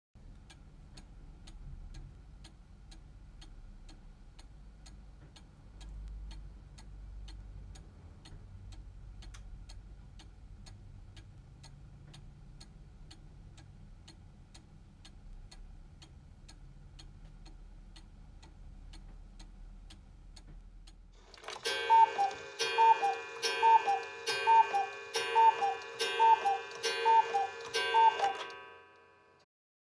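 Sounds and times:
clock ticking: 0:00.3 - 0:28.7
cuckoo clock call: 0:21.2 - 0:29.3.

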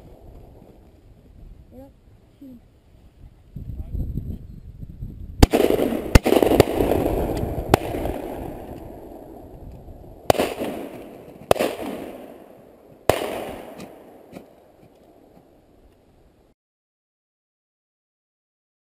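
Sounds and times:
shotgun shots echoing: 0:05.4 - 0:09.4, 0:10.2 - 0:15.4.

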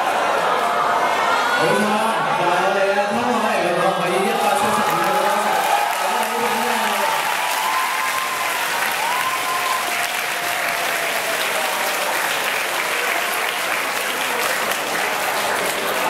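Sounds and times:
audience applauding: 0:04.0 - 0:16.0.

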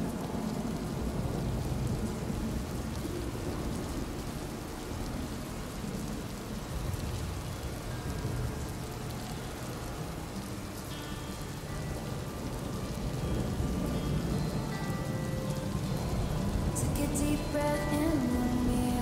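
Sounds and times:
steady rain: 0:00.0 - 0:19.0.

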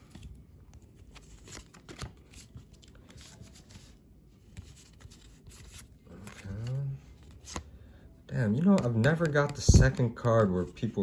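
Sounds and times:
trading cards flipped through: 0:00.0 - 0:07.8, 0:08.5 - 0:11.0.

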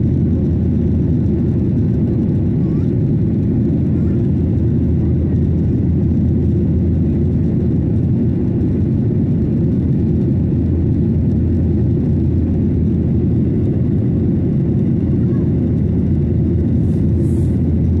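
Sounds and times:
airliner cabin rumble: 0:00.0 - 0:18.0.

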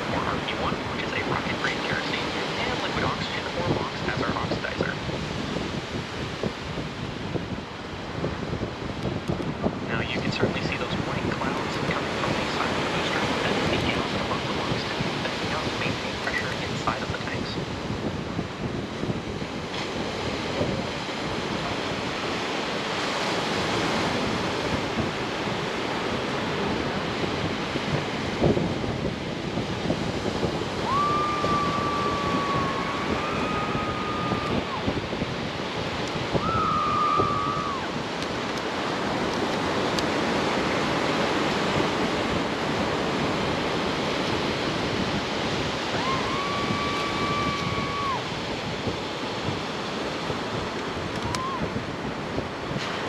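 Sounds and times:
surf breaking on beach: 0:00.0 - 0:53.0
wind on microphone: 0:00.0 - 0:53.0.

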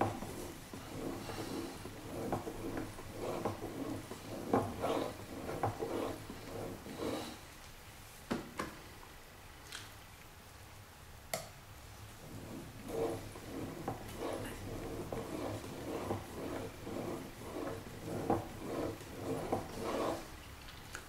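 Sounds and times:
knife scraping on whetstone: 0:00.0 - 0:07.4, 0:12.2 - 0:20.4.

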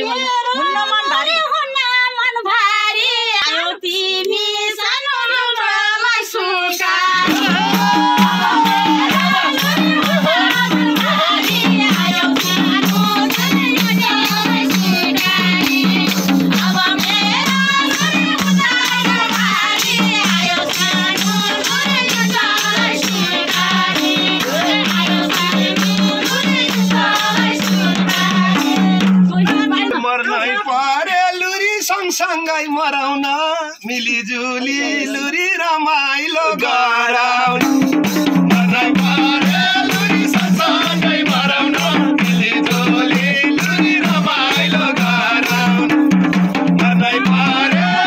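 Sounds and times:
voices singing folk song: 0:00.0 - 0:48.0
tambourine jingling: 0:06.7 - 0:30.0
drum steady rhythm: 0:07.0 - 0:30.4, 0:37.5 - 0:48.0.

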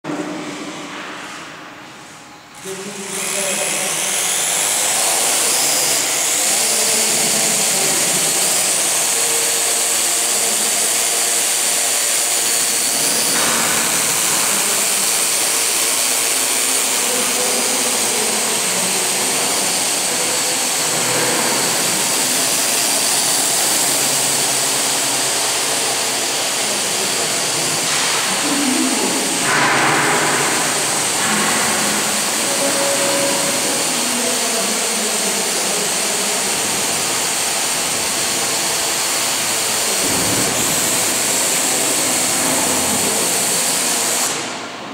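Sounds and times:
quadcopter motors whirring: 0:02.5 - 0:44.7.

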